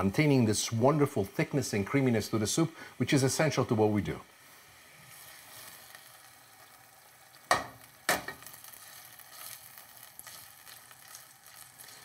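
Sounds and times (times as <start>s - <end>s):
faint sizzle from pot: 0.0s - 12.0s.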